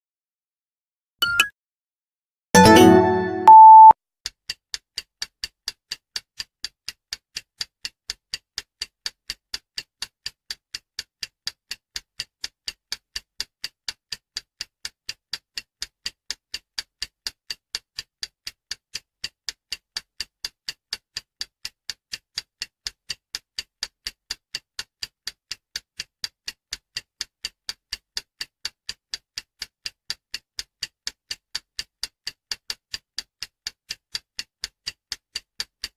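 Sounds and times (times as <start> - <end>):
clock ticking: 2.6 - 3.9, 4.5 - 35.9
electronic jingle: 2.6 - 3.9
loud held beep: 2.6 - 4.0.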